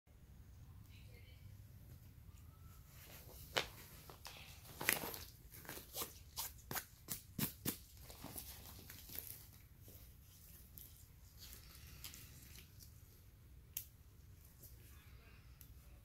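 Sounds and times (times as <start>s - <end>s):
fabric rustling: 2.0s - 13.3s.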